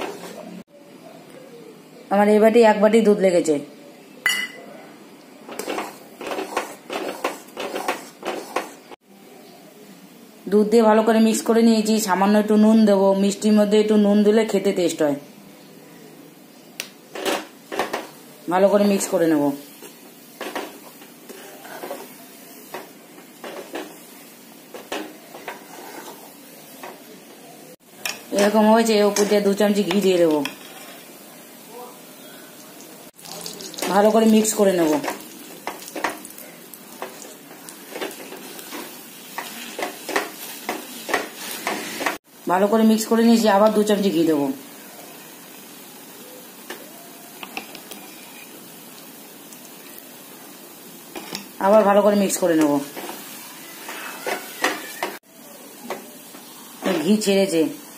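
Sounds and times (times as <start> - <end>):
metal spatula scraping a pan: 0.0 - 0.6, 5.5 - 8.9, 19.8 - 22.2, 25.3 - 26.4, 28.1 - 31.2, 37.8 - 42.2, 47.4 - 48.6, 52.8 - 55.2
flour sizzling in a wok: 5.5 - 9.0, 17.6 - 57.9.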